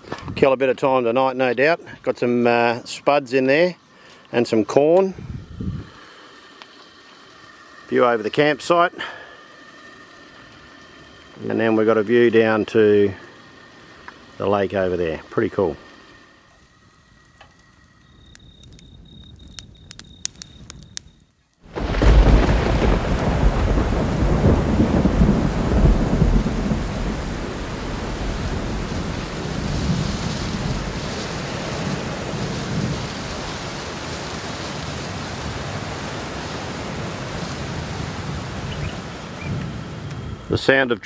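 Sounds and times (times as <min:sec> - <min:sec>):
campfire crackling: 0:09.0 - 0:40.8
heavy rain: 0:21.6 - 0:40.6
rolling thunder: 0:21.7 - 0:40.5.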